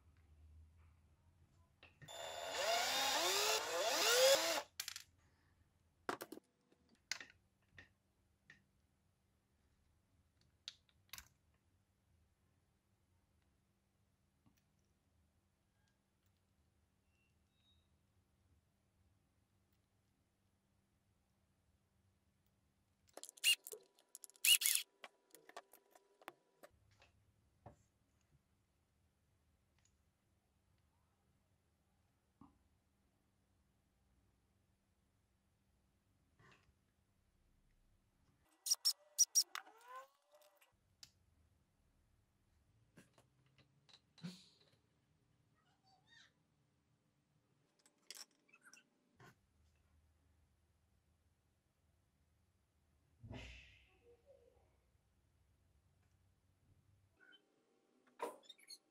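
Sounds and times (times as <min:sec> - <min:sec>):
small mechanism whirring: 0:02.1 - 0:04.7, 0:23.2 - 0:26.0, 0:38.7 - 0:40.0
plastic parts clicking and rattling: 0:23.1 - 0:26.8.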